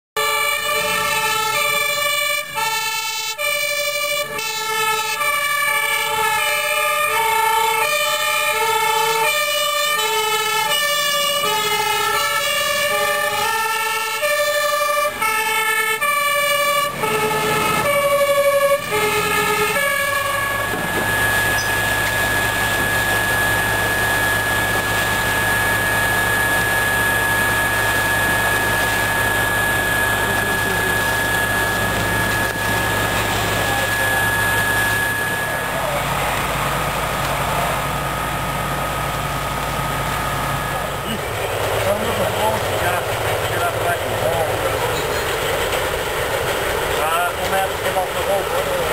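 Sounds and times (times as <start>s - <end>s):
two-tone fire engine sirens: 0.2s - 48.9s
constant high whine: 0.4s - 48.9s
steady machine drone: 16.9s - 48.9s.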